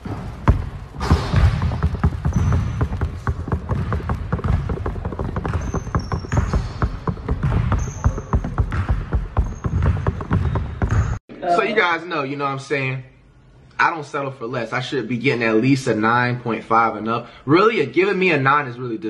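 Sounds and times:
basketball bouncing on gym floor: 0.0s - 11.2s
sneaker squeaks: 0.0s - 11.2s.

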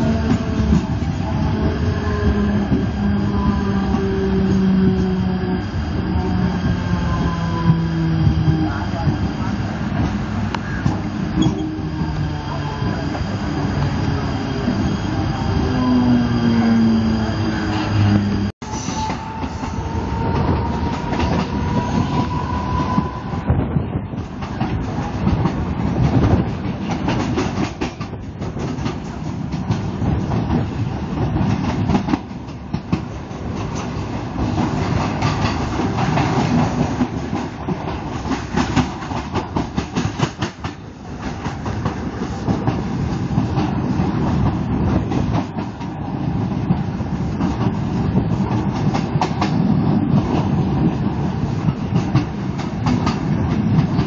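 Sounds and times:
clickety-clack over rail joints: 0.0s - 3.1s, 7.6s - 11.8s, 18.9s - 54.0s
train wheels rumbling: 0.0s - 54.0s.

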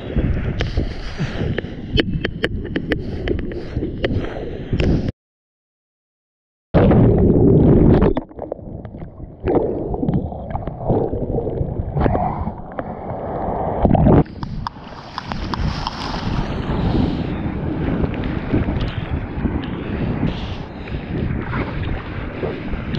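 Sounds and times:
ocean water splashing at microphone: 6.8s - 22.9s.

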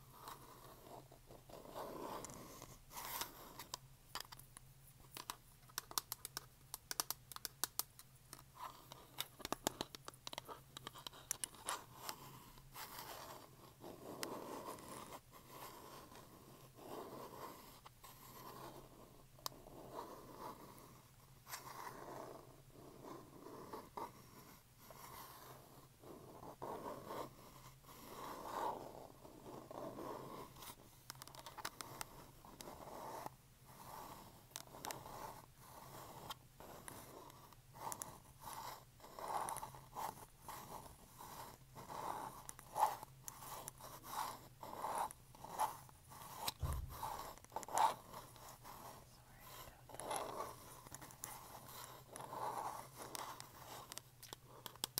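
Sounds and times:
fingernails scratching hard object: 21.6s - 54.9s.

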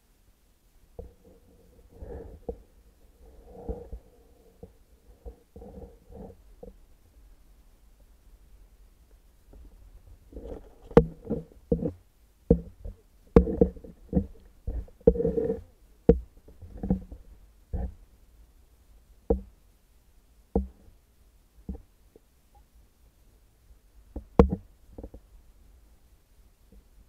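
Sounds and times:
muffled underwater knocks: 20.5s - 20.8s, 24.2s - 25.2s.

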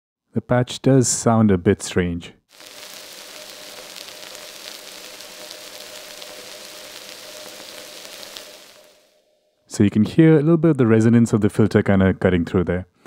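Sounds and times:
synthesizer crackling hiss: 2.5s - 9.4s
faint steady synth tone: 2.5s - 9.6s.

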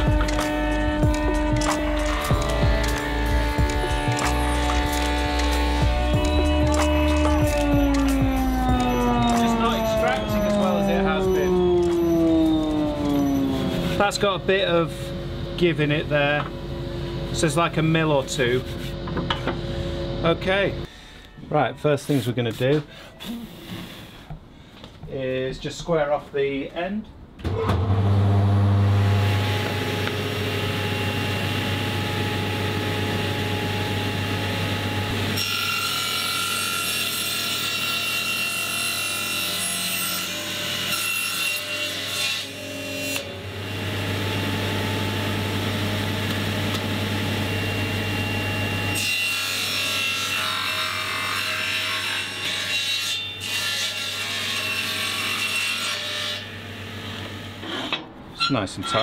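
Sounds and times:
saw blade cutting wood: 0.0s - 14.3s
table saw motor hum: 0.0s - 20.4s, 27.6s - 52.0s.

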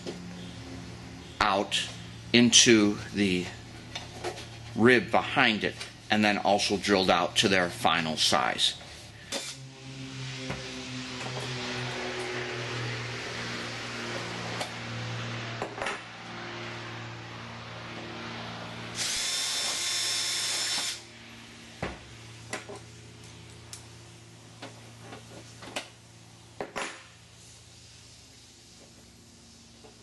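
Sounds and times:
cordless drill whine: 9.1s - 13.7s, 18.9s - 21.1s.

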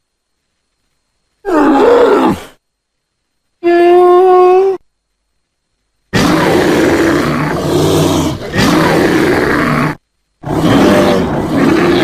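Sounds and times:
bear growling: 6.2s - 12.0s.

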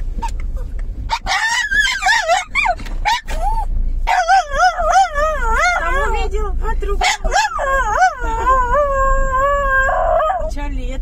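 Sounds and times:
car engine humming: 0.0s - 11.0s
dog yipping: 0.2s - 6.3s, 7.0s - 10.5s
dog whining howls: 1.1s - 6.3s, 7.0s - 10.5s.

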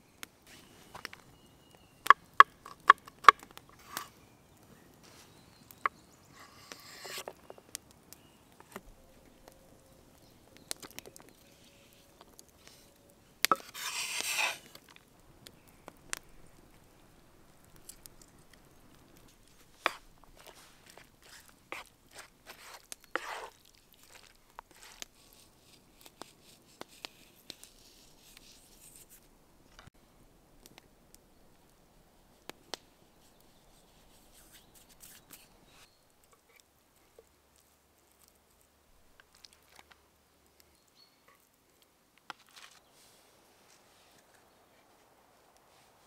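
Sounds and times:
knife scraping: 3.8s - 4.1s, 6.4s - 7.4s, 13.5s - 14.8s, 19.8s - 29.2s.

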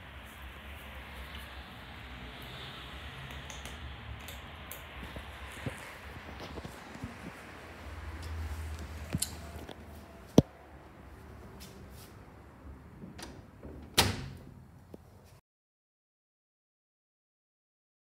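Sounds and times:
knocks and clicks on metal door: 13.0s - 14.6s.

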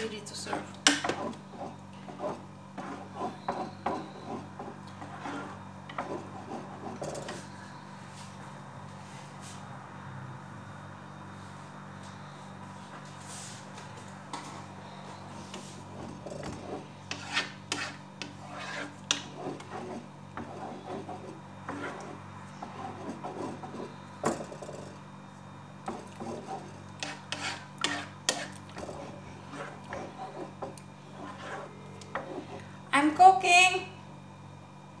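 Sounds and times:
wooden spoon scraping a pot: 0.0s - 8.3s, 14.4s - 25.0s, 25.8s - 32.8s
steady low hum: 0.0s - 35.0s.

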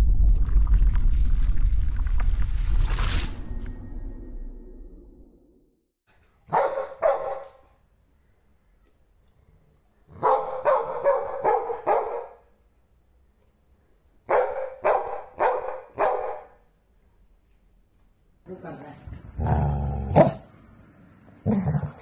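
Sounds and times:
dog barking: 6.5s - 7.8s, 10.1s - 12.5s, 14.3s - 16.6s.

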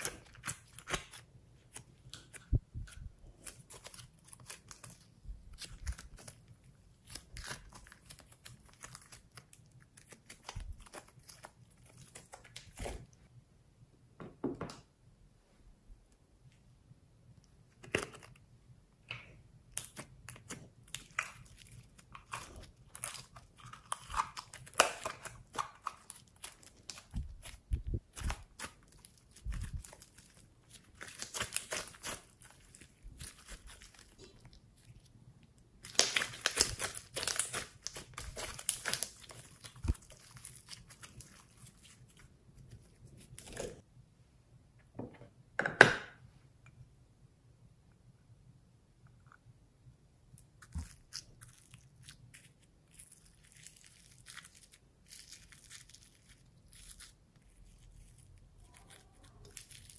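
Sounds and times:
slime crackling and popping: 19.7s - 35.1s, 35.8s - 43.8s, 50.6s - 59.9s.

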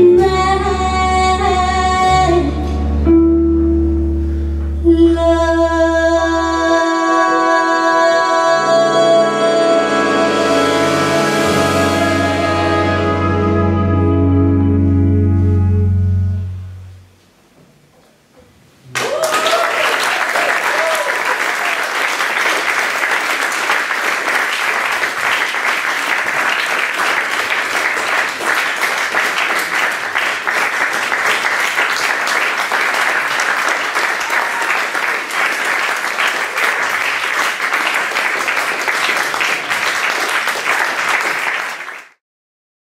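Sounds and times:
audience applauding: 18.9s - 42.2s.

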